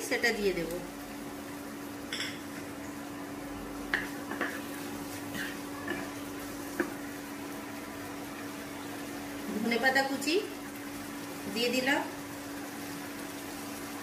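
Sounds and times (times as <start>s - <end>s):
spoon scraping a cooking pan: 4.0s - 6.1s.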